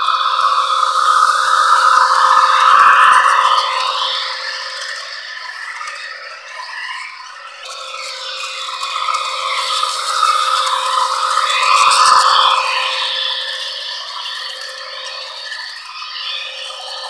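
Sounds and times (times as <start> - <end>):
model train motor whir: 7.4 - 17.0
toy train wheels rattling on rails: 7.6 - 17.0.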